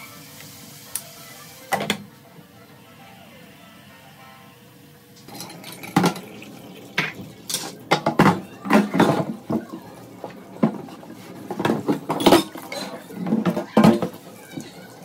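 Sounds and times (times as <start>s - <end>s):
tap water running: 5.2s - 15.0s
board and dishes knocking in sink: 7.9s - 9.7s, 10.6s - 14.2s.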